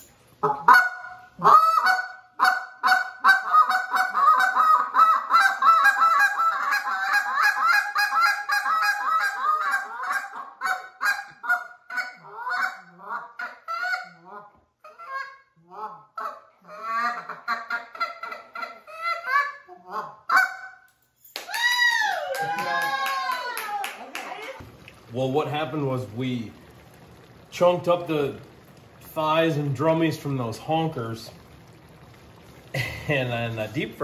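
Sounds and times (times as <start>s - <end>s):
geese honking: 0.4s - 14.4s.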